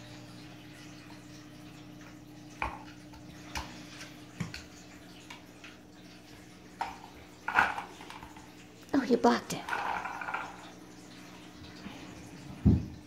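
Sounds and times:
plastic clatter: 6.8 - 8.5, 9.6 - 10.7.

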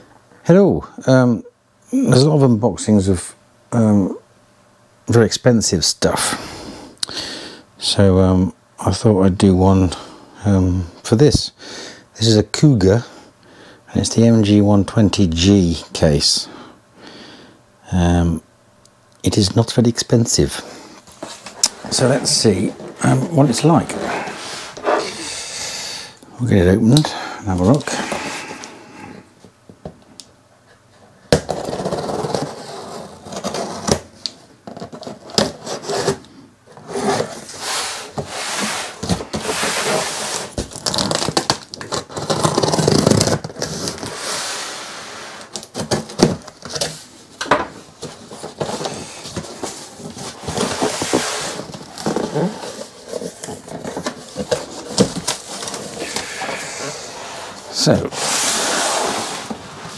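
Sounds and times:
cardboard scraping and rustling: 20.5 - 25.2, 31.4 - 59.9.

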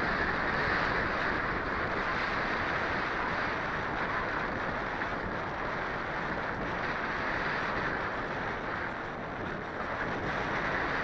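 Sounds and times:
wind rushing over microphone: 0.0 - 11.0.

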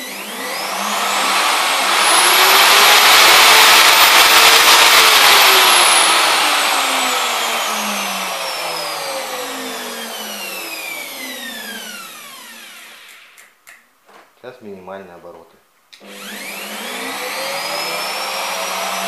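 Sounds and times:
router motor whining: 0.0 - 13.5, 16.0 - 19.0.

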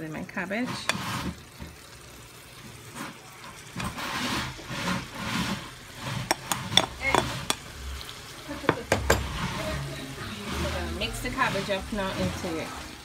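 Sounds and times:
spatula tapping bowl and pan: 6.3 - 7.6.

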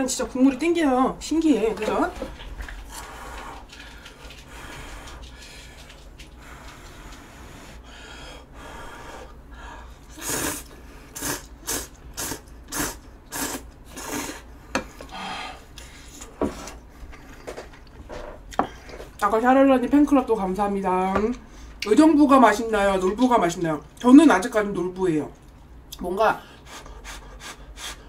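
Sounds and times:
person slurping noodles: 10.1 - 14.5.

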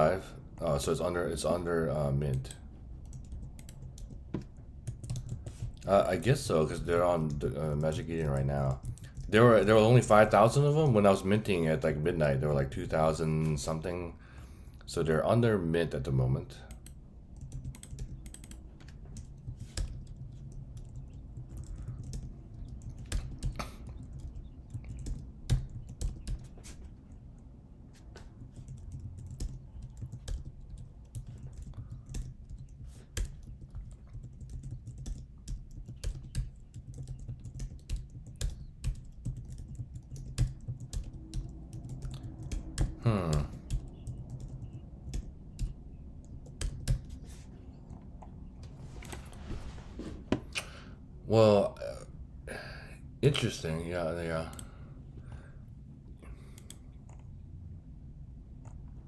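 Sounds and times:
low steady hum: 0.0 - 59.0
computer keyboard typing: 2.3 - 5.9, 6.9 - 9.7, 16.7 - 27.2, 28.2 - 47.2, 56.5 - 57.3.

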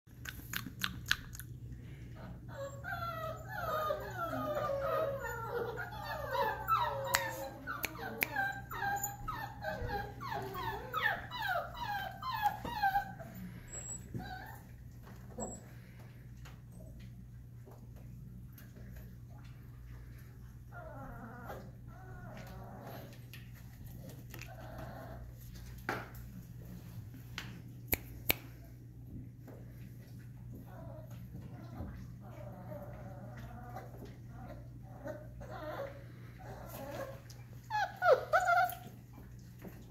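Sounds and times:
puppy whining: 2.1 - 17.2, 20.0 - 25.7, 30.5 - 39.9
finger snaps: 7.1 - 8.4, 27.4 - 28.6.

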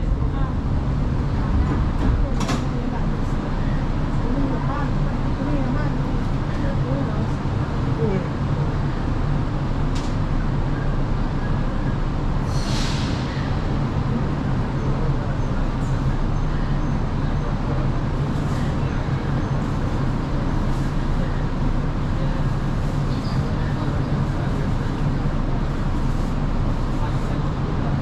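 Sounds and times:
train wheels rumbling: 0.0 - 28.0
short hiss: 12.5 - 13.3.

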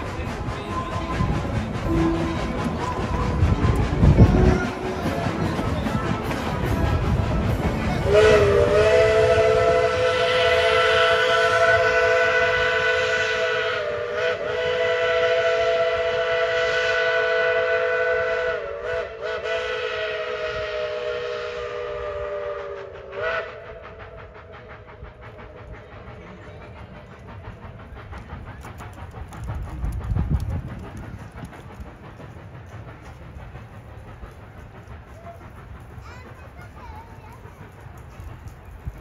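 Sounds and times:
faint train rolling: 0.0 - 39.0
steam locomotive whistle: 0.6 - 26.0.

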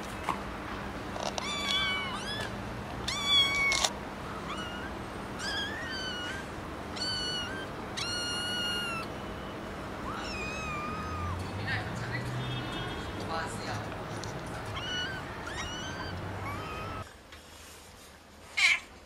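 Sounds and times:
kittens mewing: 1.2 - 9.1, 10.0 - 11.4, 14.4 - 17.1.

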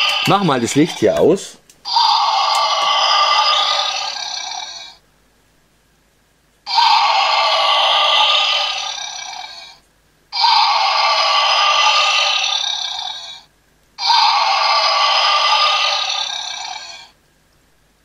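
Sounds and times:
electronic dinosaur roar from toy: 0.0 - 1.0, 1.8 - 5.0, 6.6 - 17.2.

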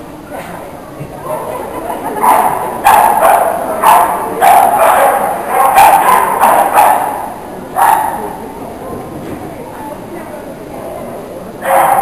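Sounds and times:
dog barking: 2.2 - 8.2, 11.6 - 12.0.

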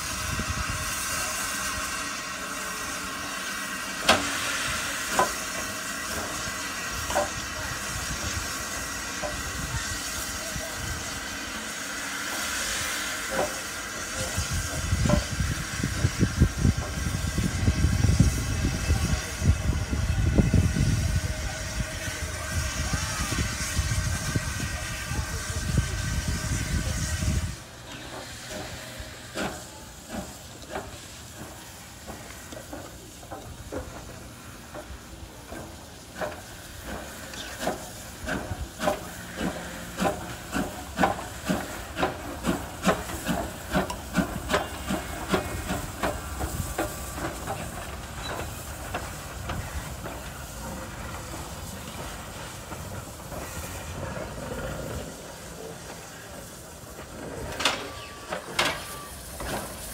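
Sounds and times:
steam hissing: 0.0 - 59.9
steam locomotive exhaust beats: 0.0 - 59.9.

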